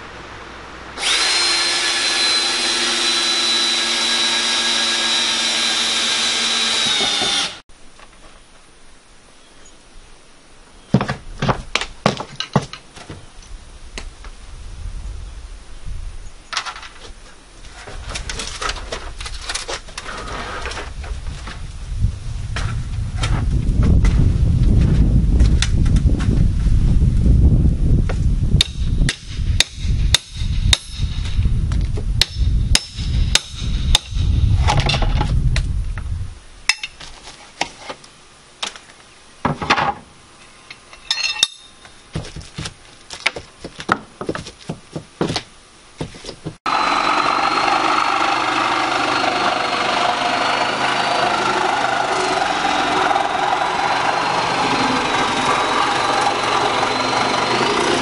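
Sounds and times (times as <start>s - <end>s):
power tool running with whine: 1.0s - 7.6s, 46.7s - 58.0s.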